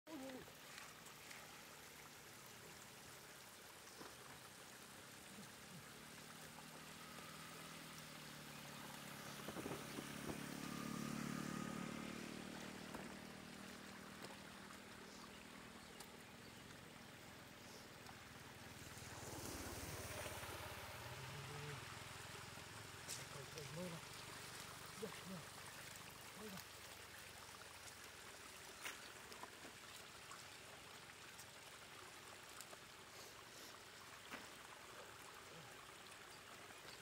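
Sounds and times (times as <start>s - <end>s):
light splashes: 0.1s - 34.7s
water trickling over road: 0.1s - 37.0s.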